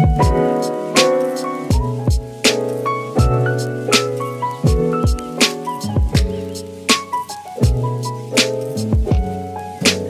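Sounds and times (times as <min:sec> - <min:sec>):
drum beat: 0:00.0 - 0:10.0.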